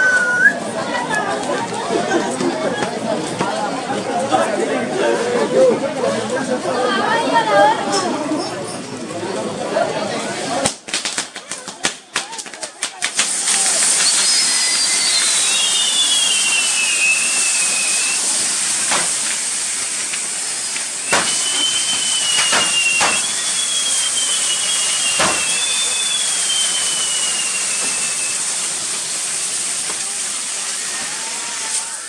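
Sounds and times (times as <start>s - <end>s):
whistling fireworks: 0.0s - 0.7s, 10.7s - 32.0s
fountain fireworks hissing: 0.0s - 32.0s
sharp firework cracks: 10.6s - 30.2s.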